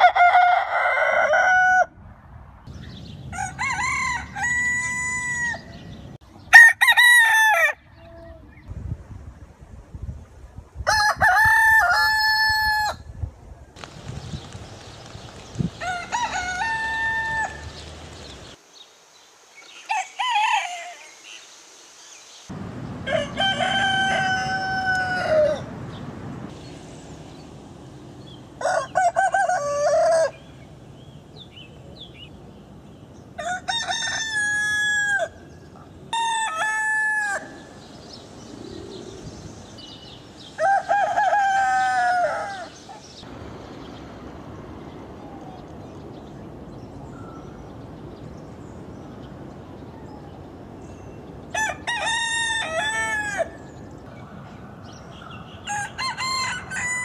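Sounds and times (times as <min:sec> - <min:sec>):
roosters crowing: 0:00.0 - 0:02.0, 0:03.3 - 0:08.1, 0:10.9 - 0:13.1, 0:15.6 - 0:18.6, 0:19.7 - 0:21.2, 0:22.5 - 0:26.0, 0:28.2 - 0:30.8, 0:33.3 - 0:43.3, 0:51.4 - 0:54.0, 0:55.5 - 0:57.0.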